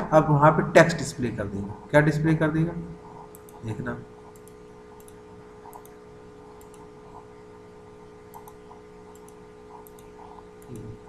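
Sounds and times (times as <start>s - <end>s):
low electrical hum: 0.0s - 11.0s
computer mouse clicks: 3.1s - 7.3s, 8.3s - 11.0s.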